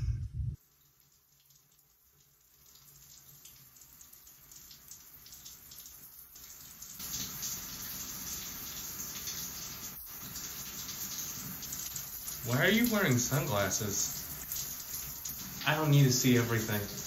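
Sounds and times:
shower water spray hissing: 0:07.0 - 0:17.0.

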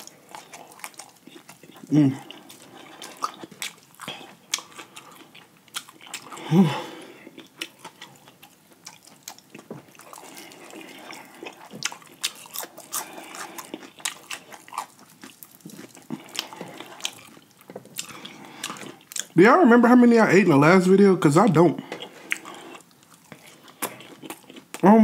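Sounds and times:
chewing and biting fried chicken: 0:00.0 - 0:19.4, 0:22.0 - 0:24.9.

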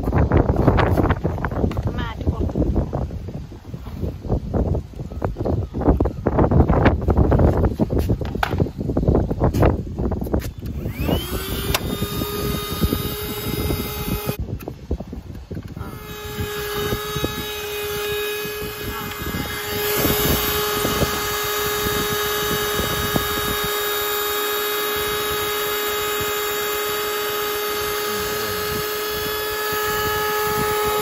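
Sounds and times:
car vacuum cleaner motor whining: 0:10.5 - 0:14.4, 0:15.6 - 0:31.0.

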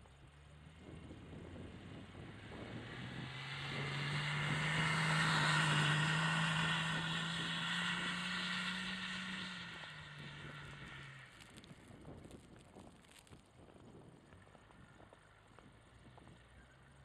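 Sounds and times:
diesel engine revving: 0:02.2 - 0:11.4.

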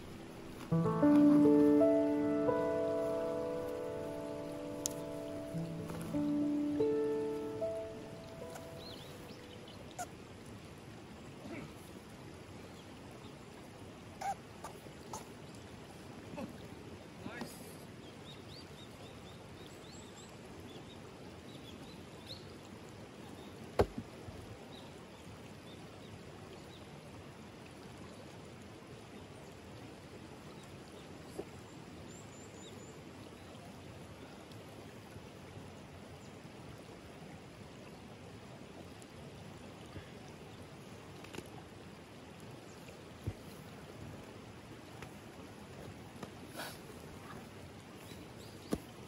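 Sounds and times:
river flowing over stones: 0:00.0 - 0:49.0
high bird chirps: 0:00.8 - 0:09.6.

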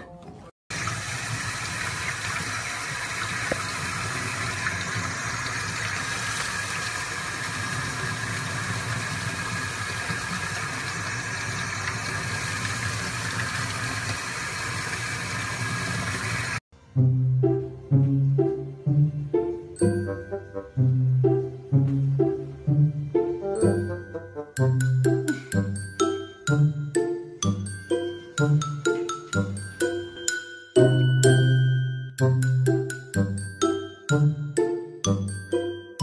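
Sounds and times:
water running from faucet: 0:00.7 - 0:16.6.

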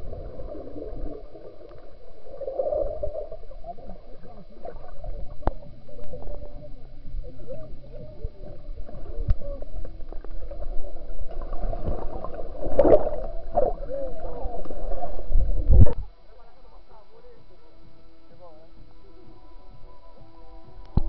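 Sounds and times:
rush of bubbles: 0:00.0 - 0:06.6, 0:07.2 - 0:16.0
gurgling bubbles: 0:00.0 - 0:16.0
muffled underwater churning: 0:00.0 - 0:21.0.

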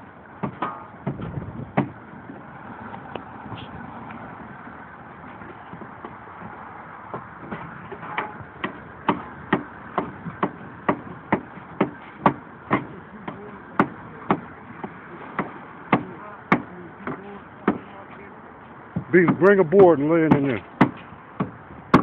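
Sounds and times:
hammer striking wood: 0:01.8 - 0:02.0, 0:07.1 - 0:17.9, 0:20.3 - 0:22.0.

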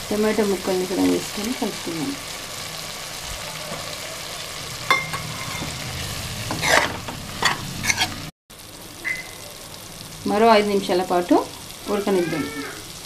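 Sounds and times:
meat and vegetables sizzling in pan: 0:00.0 - 0:13.0
spatula scraping a pan: 0:04.9 - 0:08.3.

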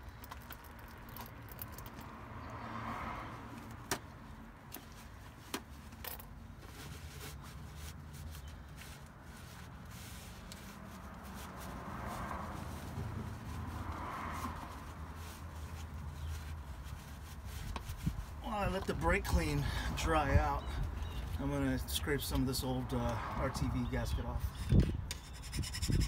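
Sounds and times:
paper towels rustling and wiping: 0:06.5 - 0:19.6.

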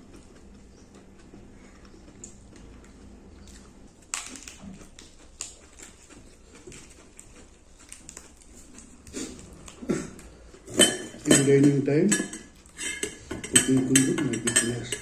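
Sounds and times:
clicks on steel plates: 0:10.8 - 0:15.0.

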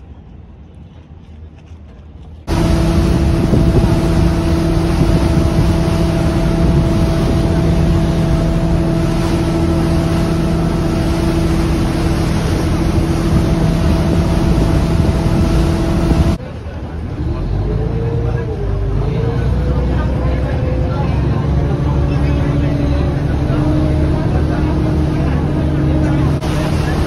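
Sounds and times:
wind noise: 0:00.0 - 0:16.4
boat engine drone: 0:02.2 - 0:27.0
rushing water: 0:02.4 - 0:27.0.

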